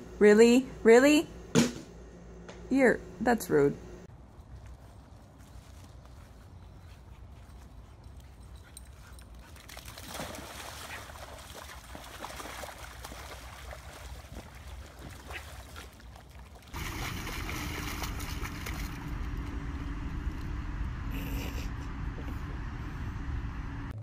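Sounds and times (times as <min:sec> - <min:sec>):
dog splashing in muddy puddle: 0:09.4 - 0:19.3
steady low rumble: 0:16.8 - 0:24.0.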